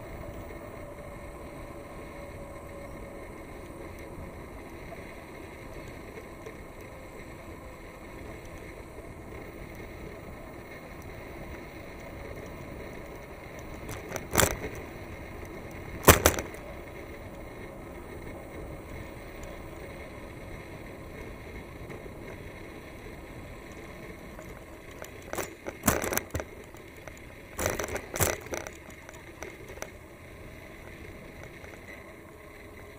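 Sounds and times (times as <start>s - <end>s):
wind and road noise: 0.0s - 32.9s
bicycle knocks and rattles: 12.3s - 17.0s, 24.4s - 30.1s, 30.7s - 32.0s.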